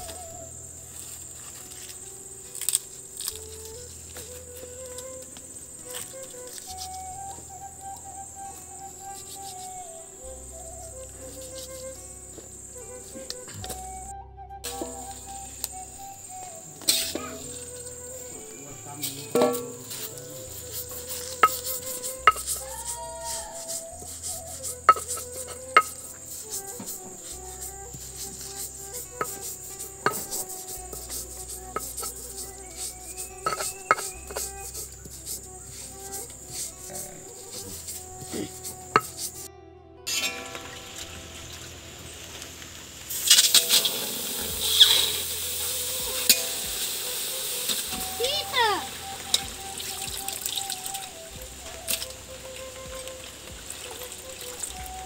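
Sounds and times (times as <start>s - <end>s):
metal ladle knocking wok: 19.3s - 19.8s
pestle grinding in stone mortar: 19.3s - 27.0s, 27.6s - 39.4s
chicken sizzling in hot oil: 41.0s - 51.1s.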